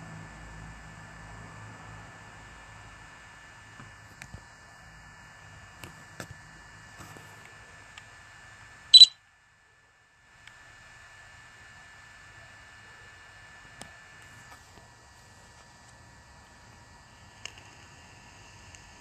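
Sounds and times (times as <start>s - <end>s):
thin high tone: 9.0s - 9.2s.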